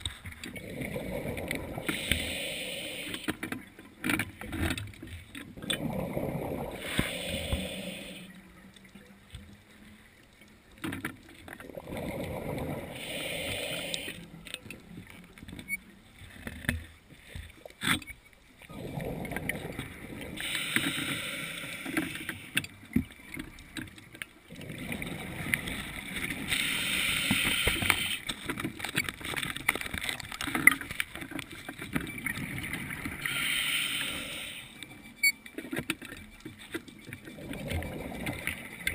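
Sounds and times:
bubbling exhaled air: 0:00.5 - 0:03.3, 0:05.6 - 0:08.3, 0:11.7 - 0:14.3, 0:18.7 - 0:22.5, 0:24.5 - 0:28.2, 0:37.4 - 0:38.9
diver breathing through regulator: 0:00.5 - 0:03.5, 0:05.7 - 0:08.4, 0:11.8 - 0:14.4, 0:18.8 - 0:22.6, 0:24.6 - 0:28.3, 0:33.1 - 0:34.8.

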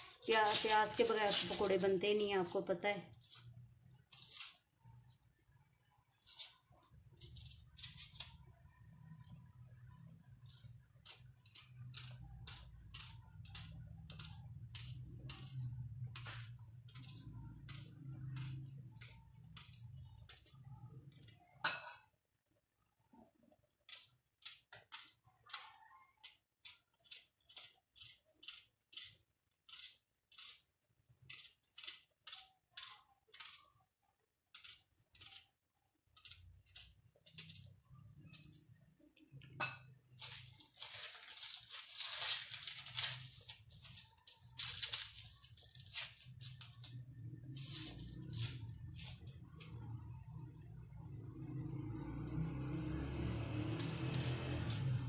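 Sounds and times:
knife slicing through onion: 0:00.0 - 0:04.7, 0:06.1 - 0:08.5, 0:10.4 - 0:21.5, 0:23.8 - 0:33.8, 0:34.5 - 0:38.6, 0:40.2 - 0:49.8
dry onion skin crackling: 0:00.0 - 0:05.4, 0:06.1 - 0:21.6, 0:23.8 - 0:39.1, 0:40.1 - 0:51.8, 0:52.4 - 0:55.0.

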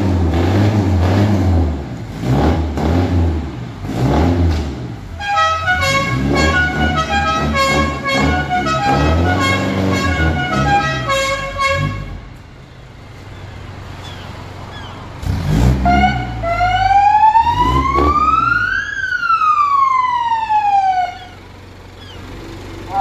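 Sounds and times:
pickup truck engine revving: 0:00.0 - 0:12.3, 0:13.8 - 0:18.8, 0:20.5 - 0:23.0
siren sweeping up and down: 0:15.8 - 0:21.4.

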